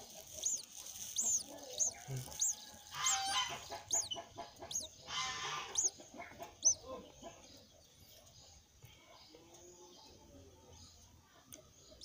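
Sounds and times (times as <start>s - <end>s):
thin high chirps: 0.0s - 5.9s, 6.6s - 6.8s
nestling rasping begging calls: 0.0s - 7.1s
chickens clucking: 0.0s - 12.0s.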